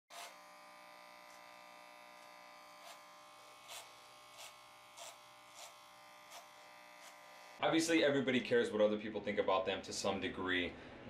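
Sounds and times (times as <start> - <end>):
clipper blades rasping through hair: 0.1 - 7.6
hair clippers buzzing: 0.1 - 7.7.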